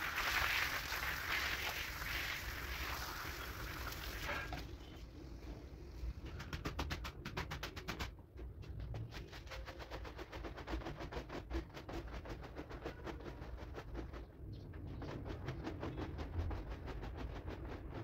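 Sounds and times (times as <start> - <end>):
broom scrubbing wet rug: 0.0 - 4.3.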